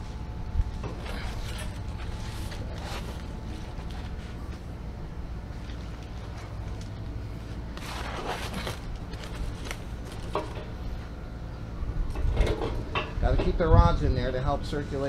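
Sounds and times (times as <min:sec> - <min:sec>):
aluminium foil crinkling: 0:01.0 - 0:04.6, 0:05.5 - 0:10.5.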